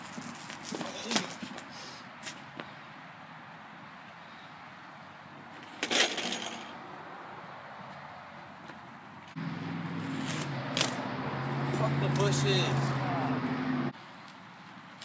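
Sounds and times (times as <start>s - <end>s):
metallic clatter and rattle: 5.6s - 6.8s
bike crashing onto asphalt: 5.7s - 6.8s.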